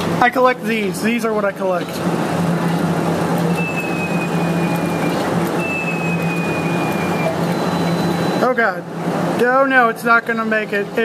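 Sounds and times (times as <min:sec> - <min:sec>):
claw machine mechanical hum: 0:00.0 - 0:11.0
long falling high tones: 0:03.6 - 0:08.5.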